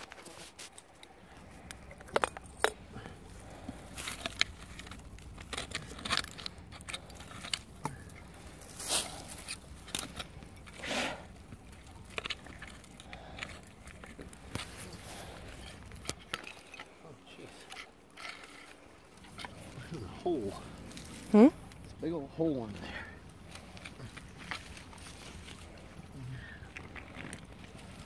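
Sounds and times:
crunching: 0:00.0 - 0:21.9
hand tool scraping soil: 0:03.4 - 0:11.3.

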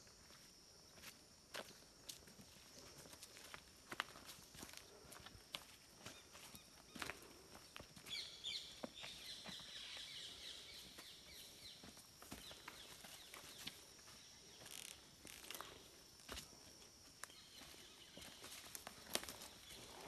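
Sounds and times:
faint insect hum: 0:00.0 - 0:20.0
footsteps on twigs and leaves: 0:00.2 - 0:10.1, 0:10.8 - 0:20.0.

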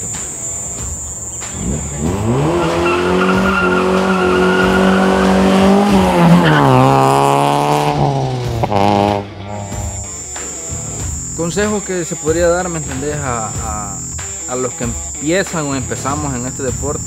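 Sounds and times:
car engine passing by: 0:01.4 - 0:10.2.

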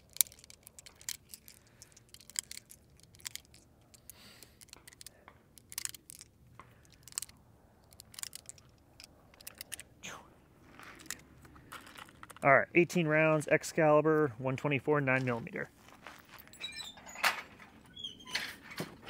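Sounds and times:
cartridges clicking into magazine: 0:00.0 - 0:09.9.

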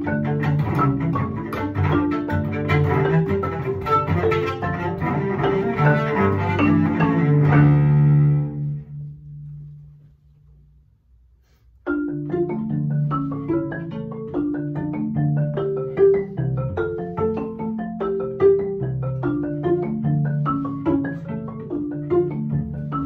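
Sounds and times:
marimba playing: 0:00.0 - 0:09.1, 0:11.8 - 0:23.0
cello bowed note: 0:00.2 - 0:09.8.

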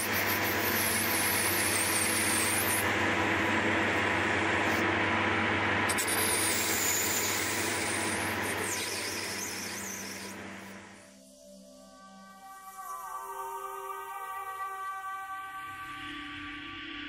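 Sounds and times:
metal lathe humming: 0:00.0 - 0:11.0.

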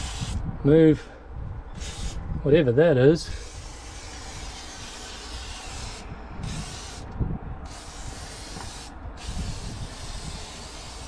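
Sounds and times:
aerosol can hissing: 0:01.8 - 0:02.2, 0:03.4 - 0:07.1, 0:07.7 - 0:11.0.

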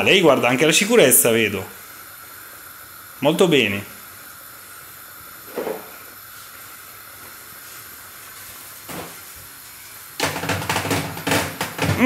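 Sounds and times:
faint room hiss: 0:00.0 - 0:12.0
plastic toy knocking: 0:10.2 - 0:12.0.

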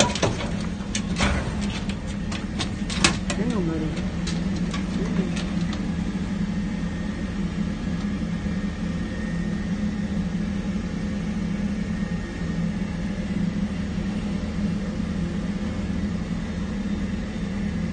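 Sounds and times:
vehicle engine idling: 0:00.0 - 0:08.2.

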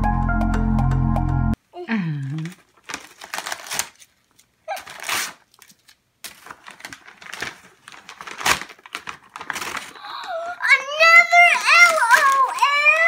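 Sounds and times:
wrapping paper crinkling and tearing: 0:02.2 - 0:13.0.

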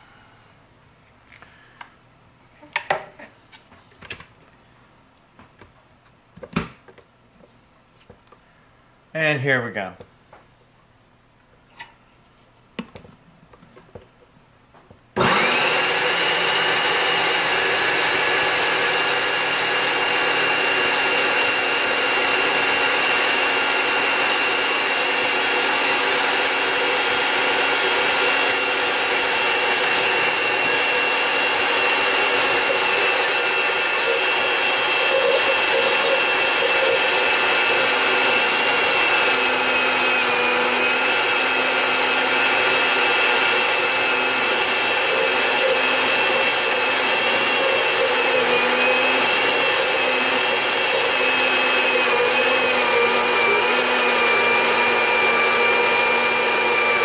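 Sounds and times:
blender whining: 0:15.2 - 0:57.0.

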